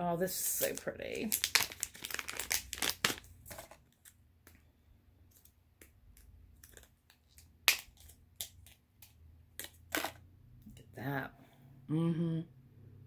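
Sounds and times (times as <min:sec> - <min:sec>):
plastic wrapper clicks and crinkles: 0:00.6 - 0:04.6, 0:05.3 - 0:10.2.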